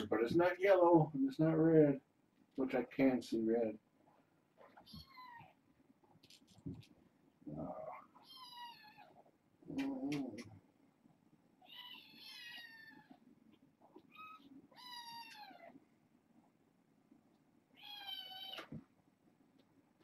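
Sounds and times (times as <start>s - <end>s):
kittens meowing: 4.7s - 5.6s, 7.6s - 10.6s, 11.6s - 13.2s, 14.0s - 15.8s, 17.8s - 18.8s.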